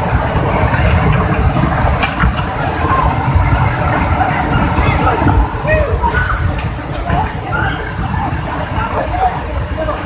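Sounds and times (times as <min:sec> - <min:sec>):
river torrent rushing: 0:00.0 - 0:10.0.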